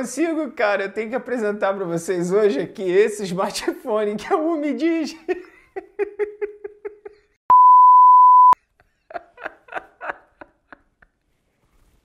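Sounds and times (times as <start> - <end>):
man laughing: 5.1 - 7.4, 8.8 - 11.1
censor bleep: 7.5 - 8.6.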